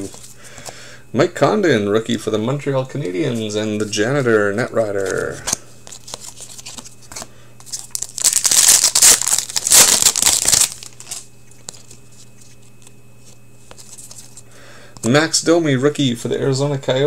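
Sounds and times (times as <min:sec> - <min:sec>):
light card handling: 0:04.8 - 0:14.4
foil wrapper crinkling: 0:07.6 - 0:12.9.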